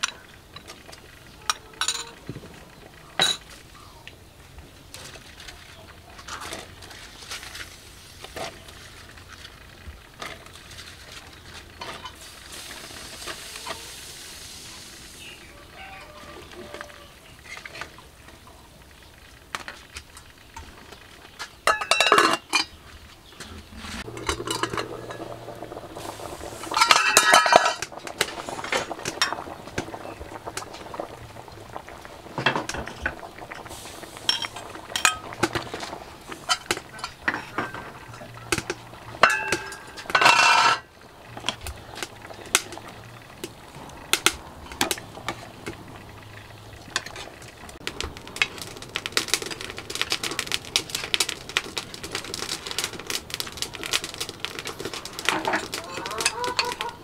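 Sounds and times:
ladle clinking against metal pot: 0:21.7 - 0:22.7, 0:26.7 - 0:27.8, 0:39.2 - 0:40.8.

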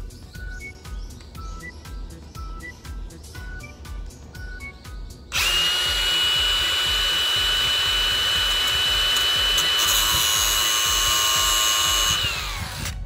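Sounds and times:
angle grinder grinding steel: 0:05.4 - 0:13.0.

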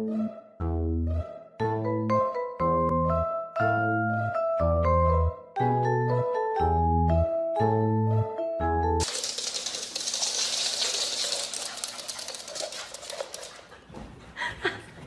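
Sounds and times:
rustling scratching noise: 0:09.1 - 0:13.9.

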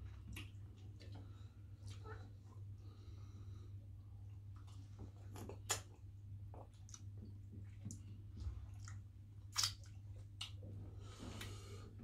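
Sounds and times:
wet mouth eating sounds: 0:04.5 - 0:10.8.

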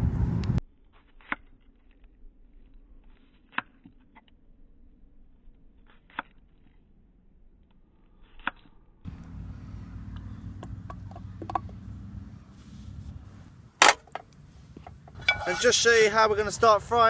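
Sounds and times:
low rumble: 0:00.0 - 0:00.6.

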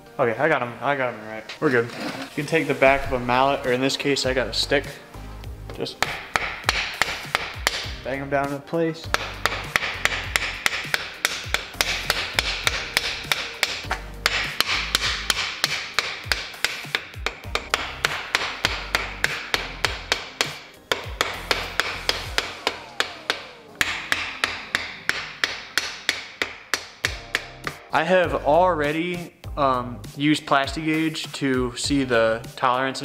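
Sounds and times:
wooden stick knocking on metal: 0:05.7 - 0:08.0, 0:09.1 - 0:27.8.

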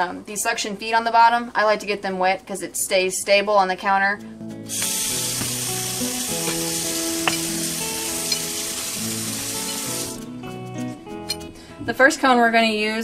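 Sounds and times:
faucet running into steel sink: 0:04.7 - 0:10.2.

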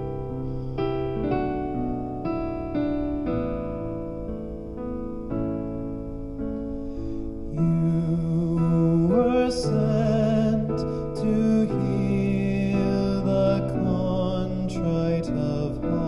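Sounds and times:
keyboard chords: 0:00.0 - 0:16.0
person singing with vibrato: 0:07.5 - 0:16.0.

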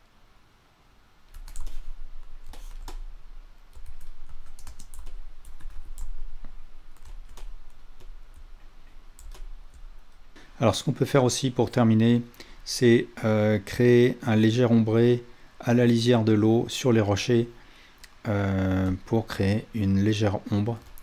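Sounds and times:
keyboard keys clicking: 0:01.3 - 0:03.1, 0:03.7 - 0:08.4, 0:09.1 - 0:09.9.

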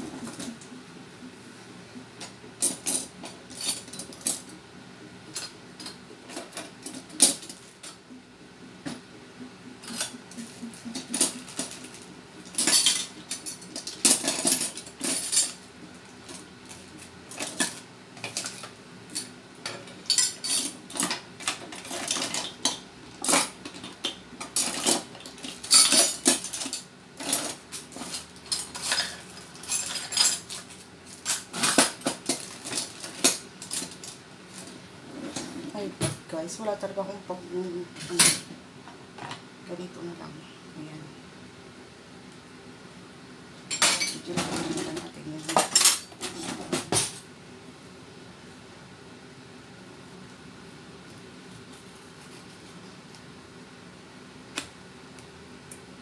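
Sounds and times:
cutlery and dishes clattering: 0:09.8 - 0:15.6, 0:17.3 - 0:34.2, 0:43.7 - 0:47.2.

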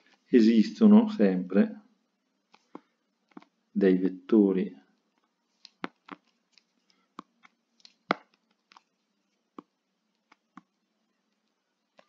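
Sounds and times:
stylus tapping on tablet screen: 0:05.2 - 0:08.9, 0:09.5 - 0:12.0.

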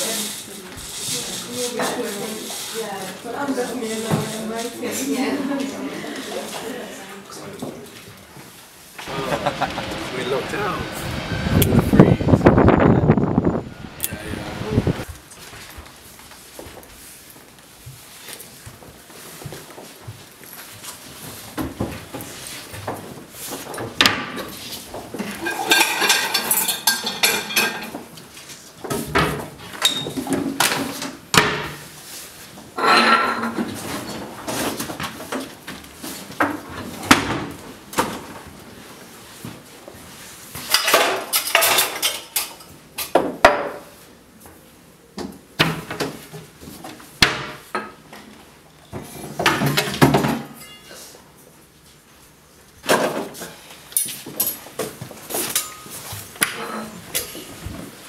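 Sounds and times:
pots and dishes clattering: 0:25.2 - 0:28.1, 0:32.8 - 0:34.3, 0:40.7 - 0:43.2.

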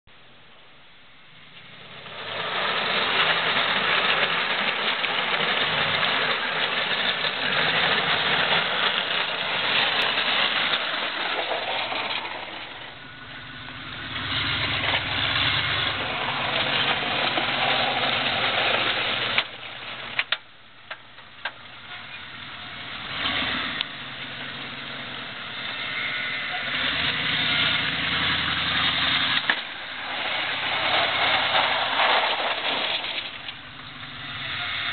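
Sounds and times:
vehicle engine driving past: 0:10.4 - 0:19.4, 0:22.2 - 0:32.2.

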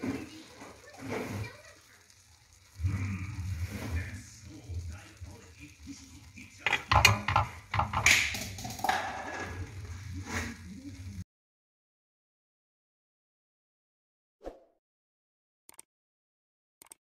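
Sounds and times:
metal saucepan clinking: 0:06.6 - 0:09.7.

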